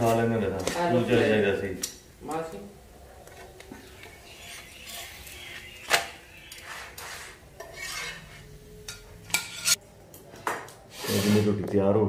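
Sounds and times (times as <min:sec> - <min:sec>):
tongs scraping on iron griddle: 0:00.0 - 0:01.2, 0:03.4 - 0:09.8.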